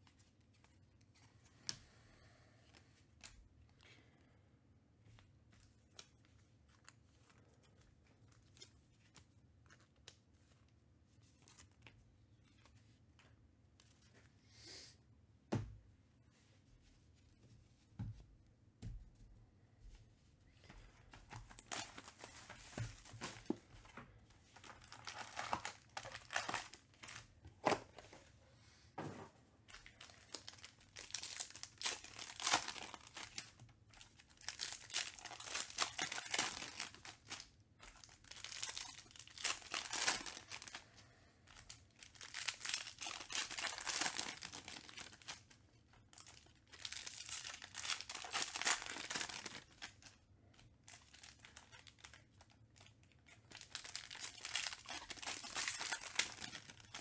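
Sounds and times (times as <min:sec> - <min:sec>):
wrappers tearing and crinkling: 0:24.6 - 0:27.2, 0:29.8 - 0:40.8, 0:41.5 - 0:45.5, 0:46.1 - 0:50.2, 0:50.9 - 0:57.0.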